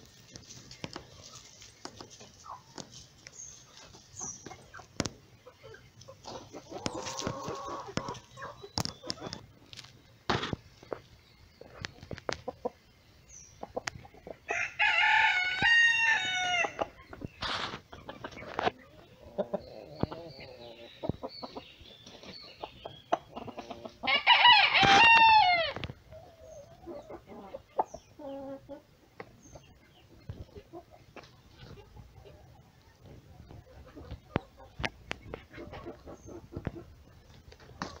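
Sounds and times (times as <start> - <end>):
hens clucking: 0.0 - 38.0
rooster crowing: 14.5 - 16.8, 24.1 - 25.8.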